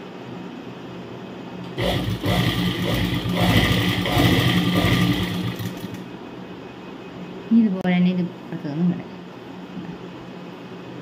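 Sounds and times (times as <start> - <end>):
sewing machine stitching: 1.7 - 6.1.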